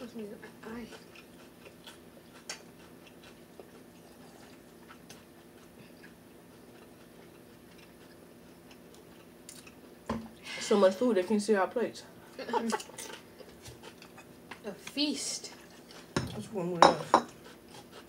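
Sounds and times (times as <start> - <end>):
faint steady hum: 0.0 - 18.0
people chewing: 0.1 - 10.1, 12.3 - 16.2, 17.3 - 18.0.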